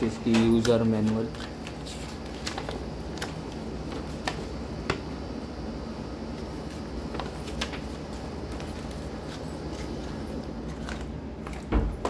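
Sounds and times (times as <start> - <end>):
paper sheets rustling: 0.0 - 4.5, 6.6 - 11.7
steady low hum: 0.0 - 12.0.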